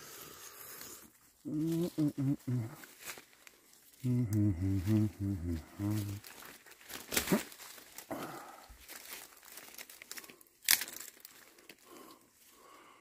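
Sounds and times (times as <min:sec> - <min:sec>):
dry leaves rustling underfoot: 0:00.0 - 0:12.7
sharp twig cracks: 0:06.9 - 0:07.8, 0:09.5 - 0:11.8.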